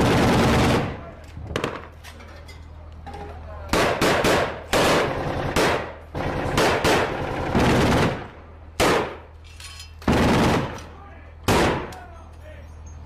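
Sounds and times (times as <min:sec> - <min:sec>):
loud gunshots: 0:00.0 - 0:01.0, 0:03.7 - 0:09.3, 0:10.1 - 0:10.8, 0:11.5 - 0:11.9.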